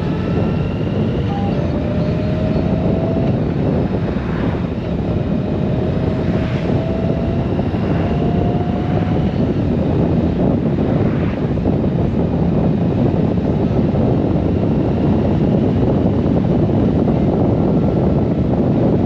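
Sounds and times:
motorcycle engine cruising: 0.0 - 19.0
wind and road noise: 0.0 - 19.0
car passing: 2.1 - 12.0.

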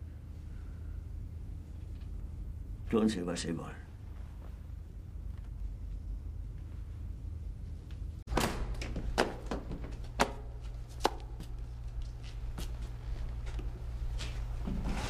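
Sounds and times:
steady low hum: 0.0 - 15.0
footsteps and knocks in a crowd: 8.4 - 15.0.

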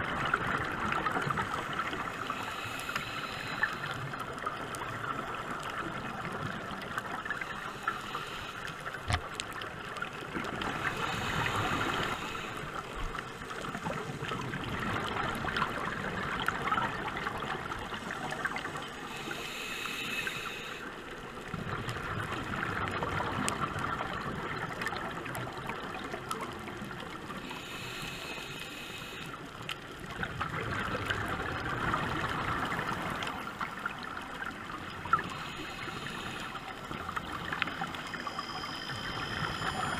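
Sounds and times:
regulator hiss on inhale: 1.9 - 4.9, 7.2 - 9.2, 10.6 - 13.8, 18.4 - 21.3, 27.3 - 29.9, 34.8 - 39.9.

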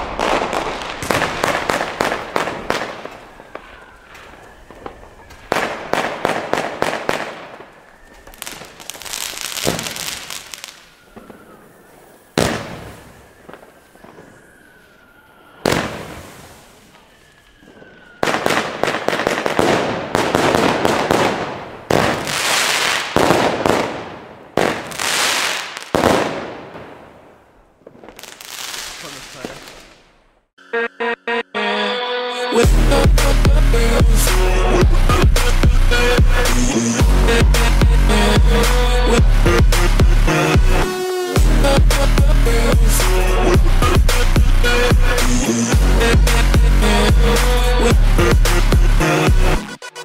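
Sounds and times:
fireworks star bursts: 0.0 - 27.4, 28.0 - 30.2
fireworks launch thumps: 9.6 - 11.4, 12.4 - 14.4.

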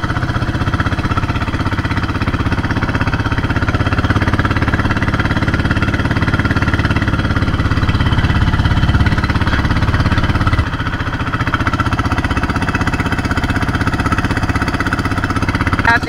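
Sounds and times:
boat engine puttering: 0.0 - 16.0.

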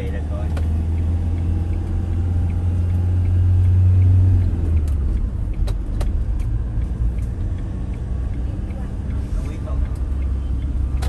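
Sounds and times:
van engine and road noise: 0.0 - 11.0.

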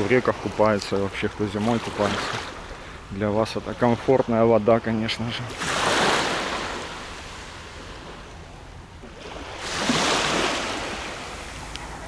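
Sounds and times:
waves washing onto pebble shore: 9.2 - 12.0.

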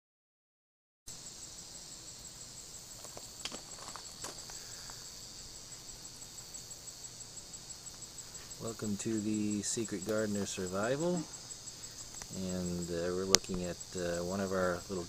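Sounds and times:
high-pitched insect chorus: 1.1 - 15.0
faint clicks: 12.0 - 12.4.

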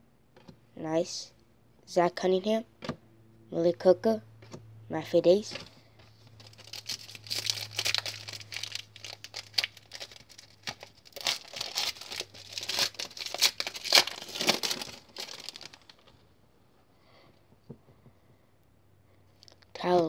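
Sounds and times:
plastic wrapper tearing and crinkling: 6.3 - 16.2.

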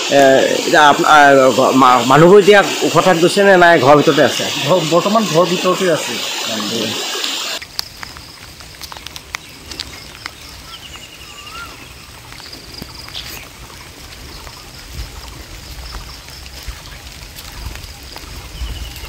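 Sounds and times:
flooded river rumbling: 0.0 - 19.0
faint clicks: 7.2 - 11.1.

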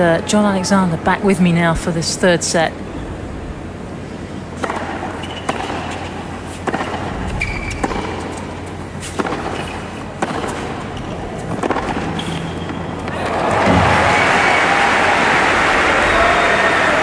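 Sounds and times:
racket hitting tennis ball: 4.6 - 13.9
shoe squeaks: 5.2 - 6.0, 7.2 - 8.4, 12.1 - 13.0
crowd hum: 10.5 - 17.0.

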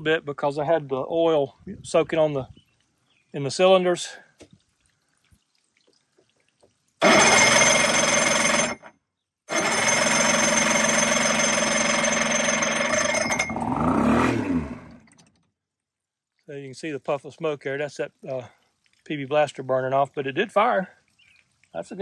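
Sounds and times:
electric starter cranking engine: 7.0 - 8.9, 9.5 - 15.5
outboard engine firing: 7.0 - 8.9, 9.5 - 15.5.

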